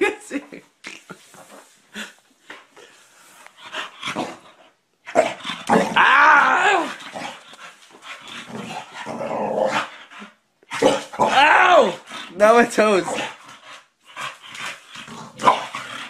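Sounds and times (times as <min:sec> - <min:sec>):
dog grumbling: 0:05.1 - 0:07.4, 0:08.3 - 0:10.1, 0:10.7 - 0:13.4.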